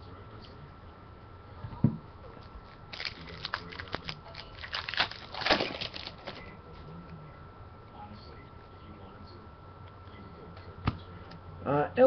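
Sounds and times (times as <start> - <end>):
foil wrappers crinkling: 2.9 - 6.5.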